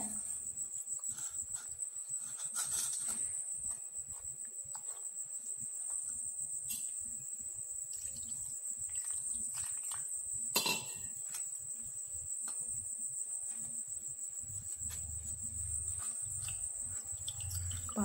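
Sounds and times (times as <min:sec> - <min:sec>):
cricket trill: 0:00.0 - 0:18.0.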